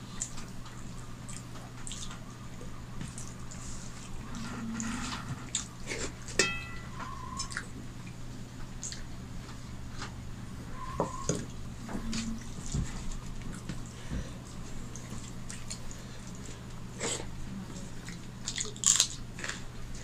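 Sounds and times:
low hum: 0:06.3 - 0:08.0
steel bowl clinking on plate: 0:06.4 - 0:07.1.

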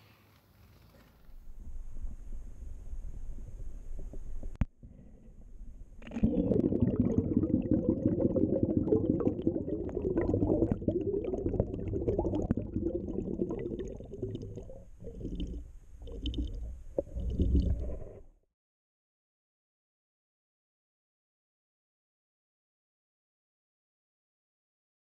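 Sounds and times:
air bubbling under water: 0:05.7 - 0:18.2.

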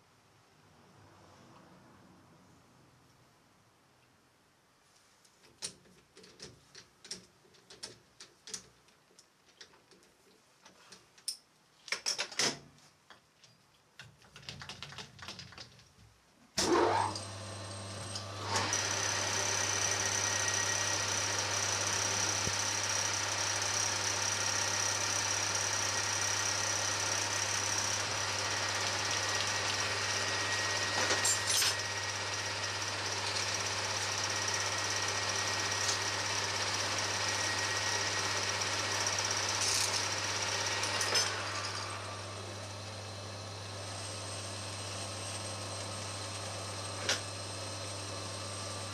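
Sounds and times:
lathe running with hum and whine: 0:16.6 - 0:48.9.

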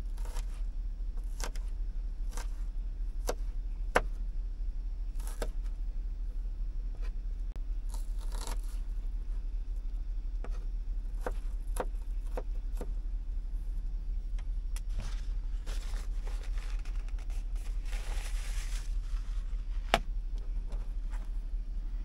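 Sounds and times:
steady low hum: 0:00.0 - 0:22.0
short rustle: 0:14.9 - 0:19.9.

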